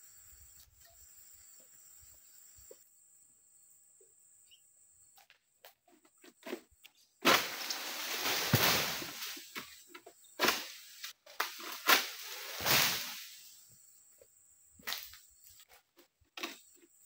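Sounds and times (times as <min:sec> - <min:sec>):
palm fronds rustling and swishing: 0:07.2 - 0:13.8.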